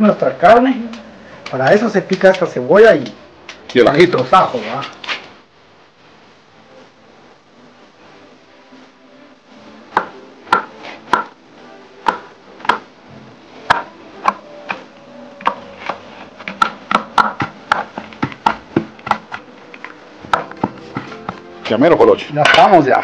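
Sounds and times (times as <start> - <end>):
knife chopping on wooden board: 10.0 - 11.3, 15.4 - 19.4.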